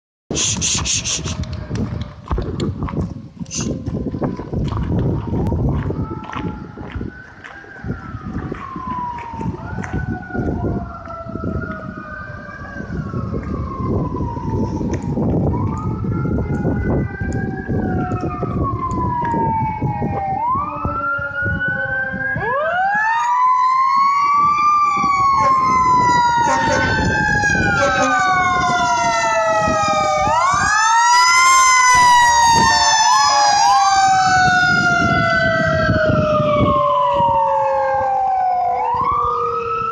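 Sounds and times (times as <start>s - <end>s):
engine and road rumble: 0.3s - 39.9s
emergency sirens wailing: 0.4s - 2.8s, 3.6s - 39.9s.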